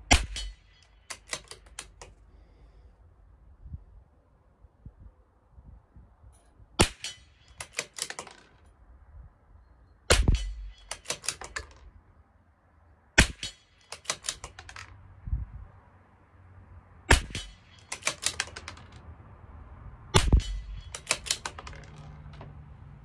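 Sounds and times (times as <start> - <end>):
rifle shots: 0.1 - 2.0, 10.1 - 11.8, 13.2 - 14.8, 17.1 - 19.0, 20.2 - 22.0
rifle bolt clicking: 0.2 - 2.2, 7.0 - 8.6, 10.3 - 11.9, 13.4 - 15.0, 17.2 - 19.0, 20.3 - 22.5.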